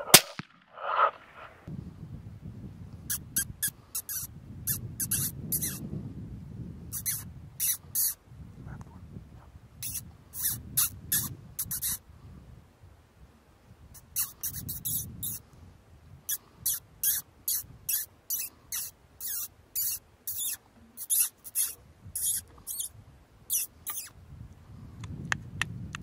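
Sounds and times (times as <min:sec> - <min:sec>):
high-pitched rodent distress squeaks: 0:03.1 - 0:05.8, 0:06.9 - 0:08.2, 0:09.8 - 0:12.0, 0:14.0 - 0:15.4, 0:16.3 - 0:22.9, 0:23.5 - 0:24.1.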